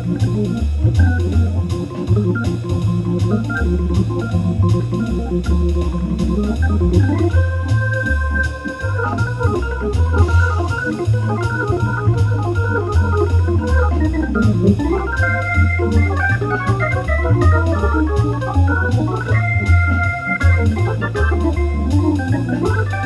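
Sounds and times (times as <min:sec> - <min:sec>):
organ music: 0:00.0 - 0:23.0.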